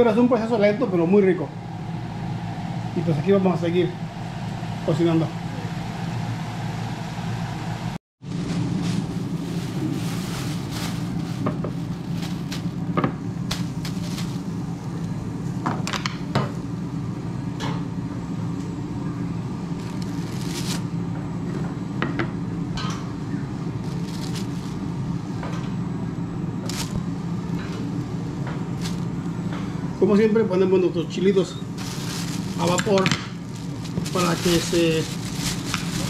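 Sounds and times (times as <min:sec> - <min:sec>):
low hum: 0:00.6 - 0:21.8, 0:31.5 - 0:36.0
plastic bag crinkling: 0:08.9 - 0:15.1, 0:19.8 - 0:20.9, 0:23.8 - 0:24.9, 0:26.6 - 0:27.1, 0:28.7 - 0:29.2, 0:31.8 - 0:36.0.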